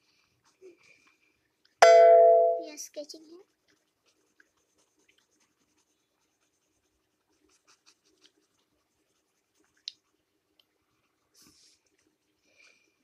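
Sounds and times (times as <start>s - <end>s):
pencil shading strokes on paper: 2.6s - 10.4s.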